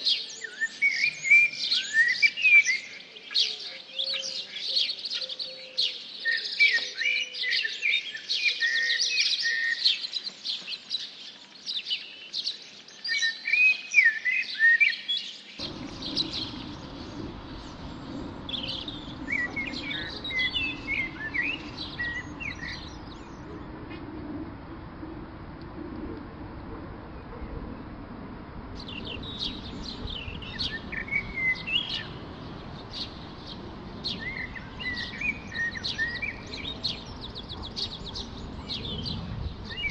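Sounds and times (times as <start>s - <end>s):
songbirds chirping: 0.0s - 39.9s
low rushing noise: 15.6s - 39.9s.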